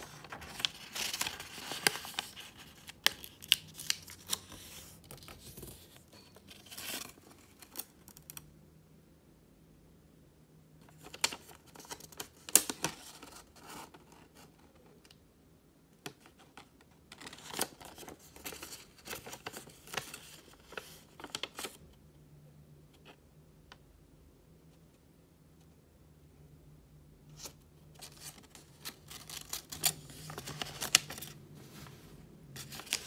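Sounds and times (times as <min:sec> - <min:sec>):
paper rustling and crackling: 0:00.0 - 0:08.4, 0:16.1 - 0:21.8, 0:27.4 - 0:33.0.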